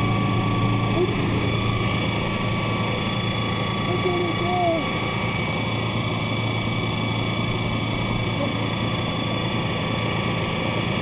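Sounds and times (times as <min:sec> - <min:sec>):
electric motor humming: 0:00.0 - 0:11.0.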